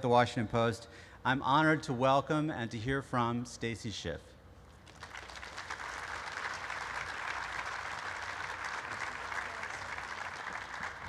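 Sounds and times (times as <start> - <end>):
audience applauding: 4.9 - 11.0.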